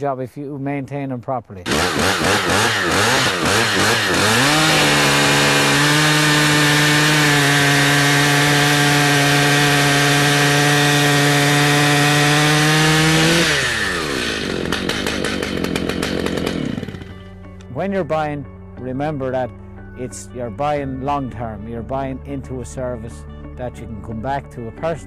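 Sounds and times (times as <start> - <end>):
small engine revving: 1.6 - 17.3.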